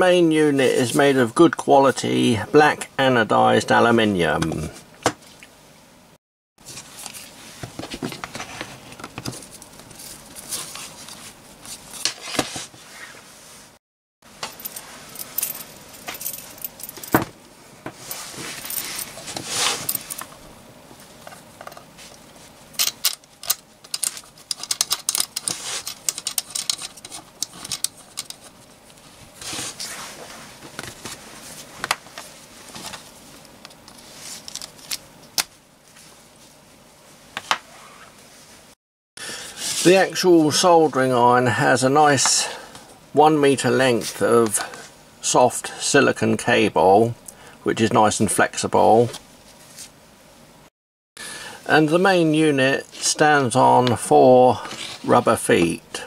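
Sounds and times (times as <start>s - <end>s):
clicks and metallic rattles: 22.8s - 28.5s.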